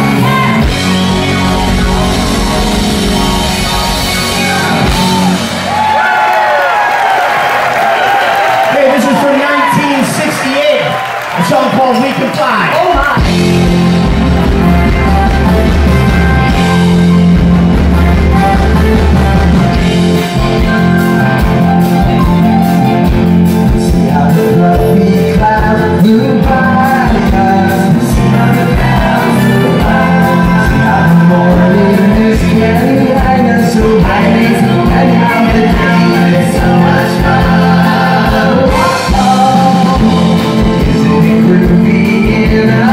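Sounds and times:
steady drum beat: 0:00.0 - 0:06.0, 0:12.8 - 0:42.9
keyboard: 0:00.0 - 0:07.4, 0:11.4 - 0:42.9
electric guitars: 0:00.0 - 0:07.9, 0:12.9 - 0:42.9
people singing: 0:24.8 - 0:42.9.

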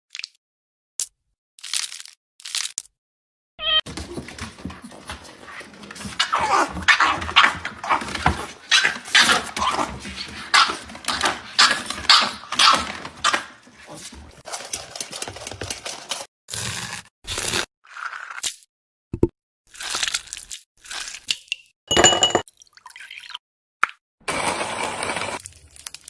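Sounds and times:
small dog barking excitedly: 0:03.9 - 0:14.4.

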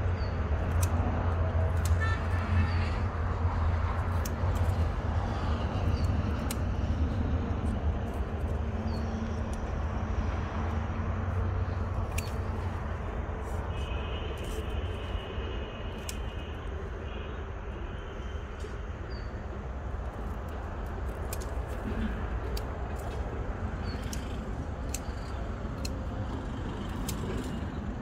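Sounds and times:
sharp clicks: 0:20.5 - 0:27.6.

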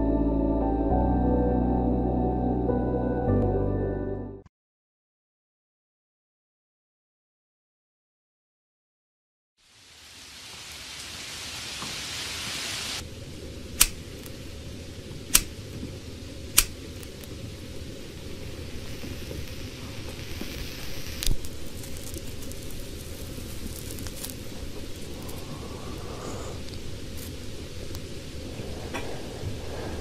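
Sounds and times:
rain hissing: 0:09.6 - 0:30.0
low rumble: 0:13.0 - 0:30.0.

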